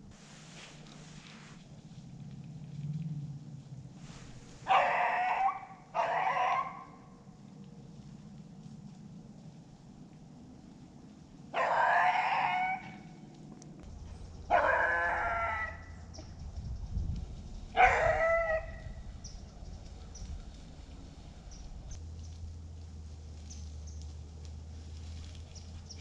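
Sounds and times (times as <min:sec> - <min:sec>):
rooster crowing: 0:04.7 - 0:07.0, 0:11.6 - 0:13.0, 0:14.5 - 0:16.0.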